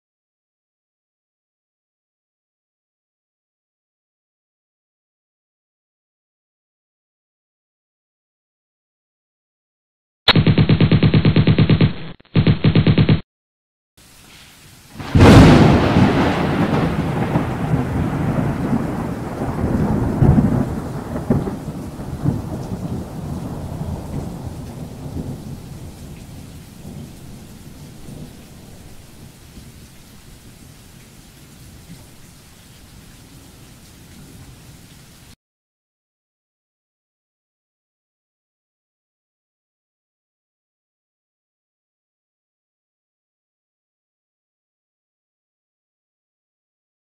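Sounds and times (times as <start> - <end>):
faint steady hiss: 14.0 - 15.2
thunder crack and rumble: 15.0 - 29.8.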